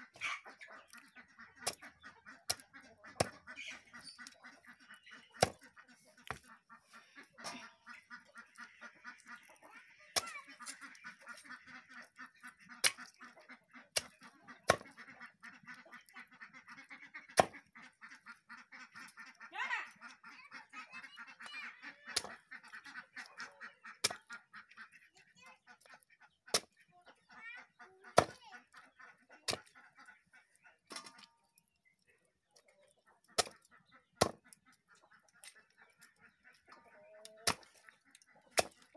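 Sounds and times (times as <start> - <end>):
poultry honking and quacking: 0.0 - 38.9
chopper chopping on wooden board: 17.4 - 17.6, 28.2 - 28.4, 34.2 - 34.4.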